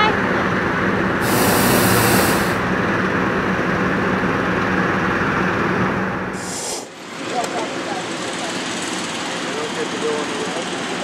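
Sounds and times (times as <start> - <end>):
inflator fan engines humming: 0.0 - 11.0
propane burners roaring: 0.0 - 11.0.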